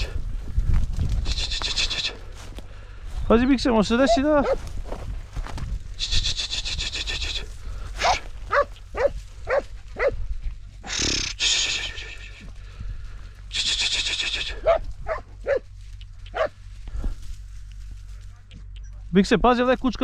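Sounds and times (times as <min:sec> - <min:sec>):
rustling noise: 0:00.0 - 0:03.6, 0:04.4 - 0:10.8, 0:12.2 - 0:18.5
hound barking in short yelps: 0:08.0 - 0:10.2, 0:14.6 - 0:15.7, 0:16.3 - 0:16.6.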